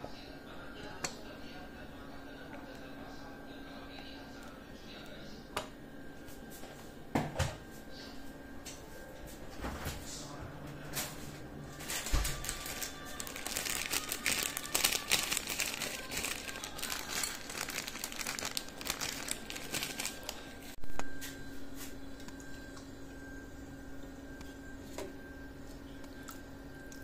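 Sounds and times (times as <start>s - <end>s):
plastic packet crinkling: 11.7s - 20.7s.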